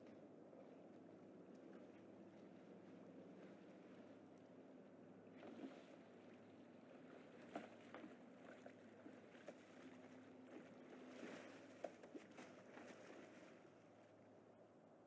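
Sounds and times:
pond water lapping: 0:00.0 - 0:14.8
steady low hum: 0:00.0 - 0:15.0
small splashes and drips: 0:05.3 - 0:14.2.

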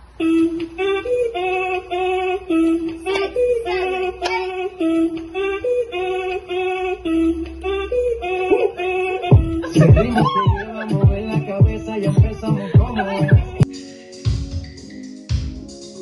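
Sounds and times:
upbeat dance music: 0:01.5 - 0:05.3, 0:08.2 - 0:16.0.

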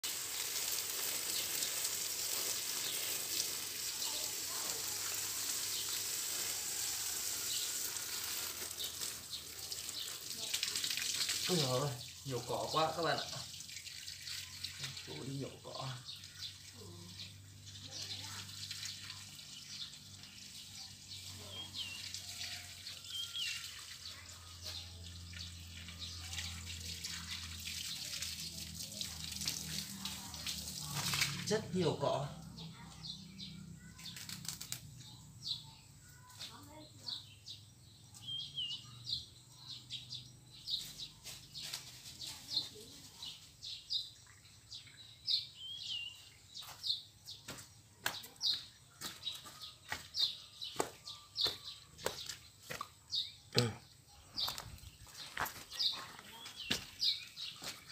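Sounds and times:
garden hose spraying water: 0:00.0 - 0:57.9
faint bird chirps: 0:32.7 - 0:47.5
weeds rustling and crackling: 0:34.0 - 0:34.8, 0:40.7 - 0:43.5.

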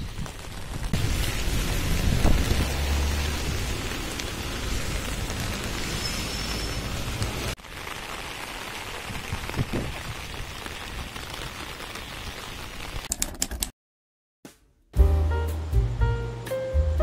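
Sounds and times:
steady rain hiss: 0:00.0 - 0:13.1.

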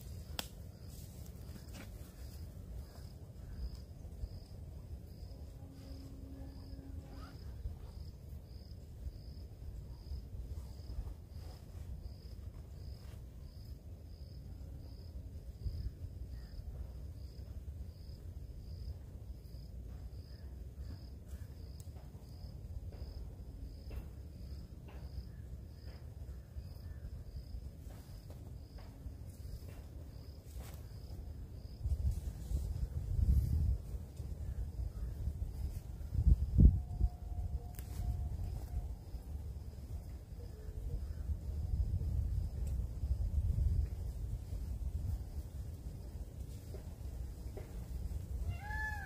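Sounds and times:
cricket chirping: 0:00.0 - 0:49.0
low steady rumble: 0:26.4 - 0:48.4.

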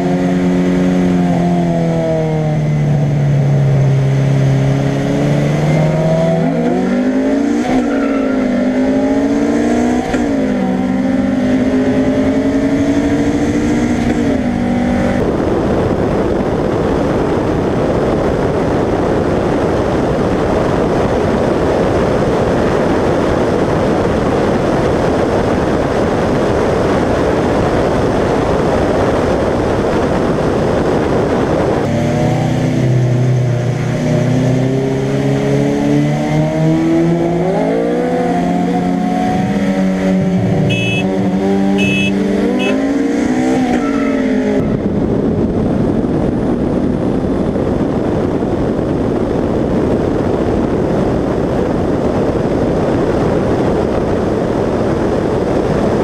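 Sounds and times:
car engine accelerating hard: 0:00.0 - 0:22.4, 0:25.9 - 0:49.8
wind rushing over microphone: 0:00.0 - 0:56.0
short high beeps: 0:40.7 - 0:41.1, 0:41.8 - 0:42.8.

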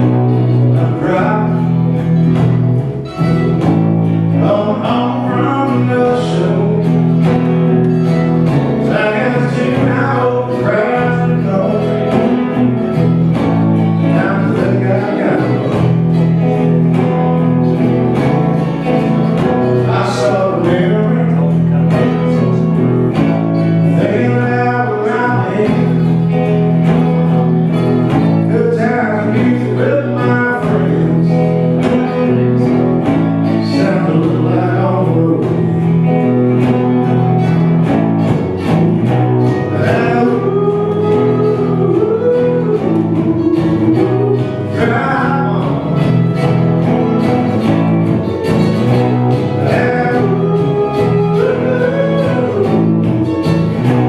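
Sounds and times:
country guitar picking: 0:00.0 - 0:54.0
low bass notes: 0:00.0 - 0:54.0.

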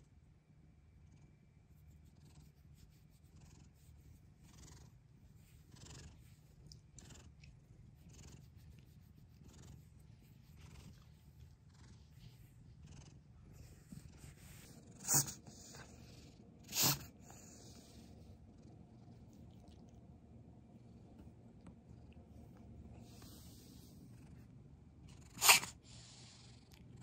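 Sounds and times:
cat purring: 0:00.9 - 0:27.0.

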